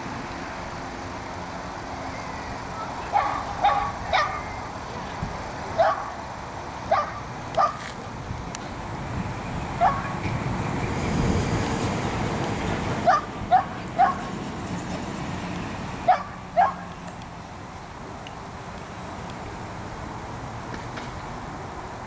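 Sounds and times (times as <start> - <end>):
dog barking high: 3.1 - 4.6, 5.8 - 6.2, 6.9 - 7.9, 9.8 - 10.2, 13.0 - 14.3, 16.1 - 16.9.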